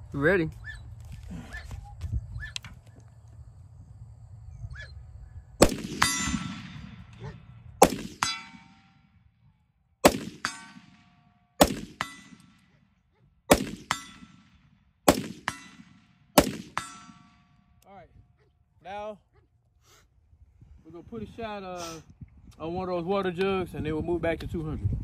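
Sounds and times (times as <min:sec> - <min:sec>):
rifle shots: 0:05.6 - 0:09.1, 0:10.0 - 0:12.8, 0:13.5 - 0:17.6
bullet clanging on steel target: 0:05.8 - 0:07.3, 0:08.1 - 0:09.0, 0:10.4 - 0:11.2, 0:11.8 - 0:12.7, 0:13.7 - 0:14.6, 0:15.4 - 0:16.0, 0:16.6 - 0:17.6.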